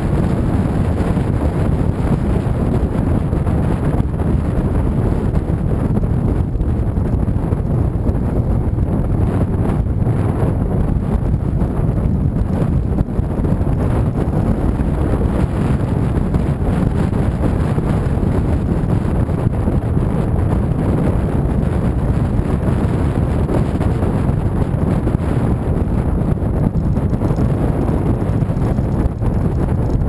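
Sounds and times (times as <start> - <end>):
road noise: 0.0 - 30.0
wind rumble on microphone: 0.0 - 30.0.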